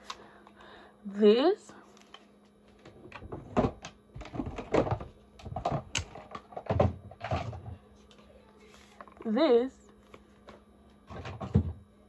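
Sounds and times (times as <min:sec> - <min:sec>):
plastic bottles knocking and clicking: 0:02.8 - 0:07.8.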